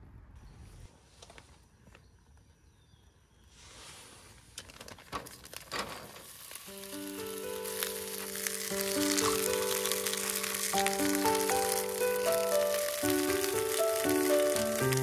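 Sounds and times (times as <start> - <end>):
wood fire crackling and sizzling: 4.6 - 15.0
soft background music: 6.6 - 15.0.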